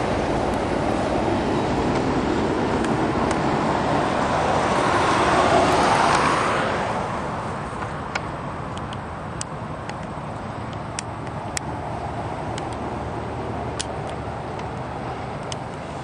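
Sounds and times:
car passing close by: 0.0 - 8.0
highway traffic noise: 0.0 - 16.0.

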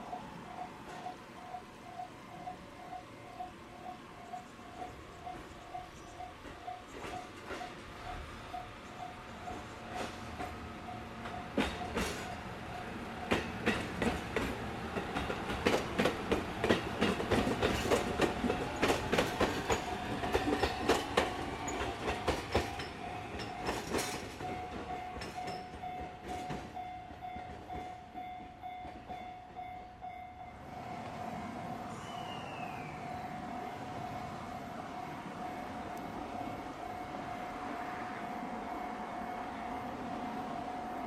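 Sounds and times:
train wheels clacking over rail joints: 4.8 - 8.2, 9.4 - 29.8.

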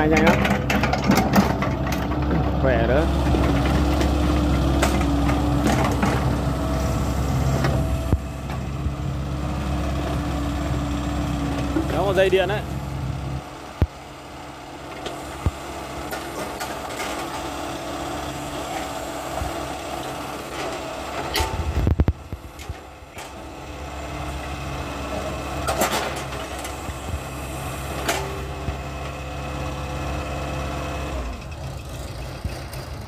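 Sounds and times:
excavator bucket knocks and clanks: 0.0 - 2.6, 3.3 - 6.4
rumble and thump: 0.0 - 6.5, 7.1 - 9.0, 20.5 - 23.4
excavator diesel engine running: 0.0 - 33.0.

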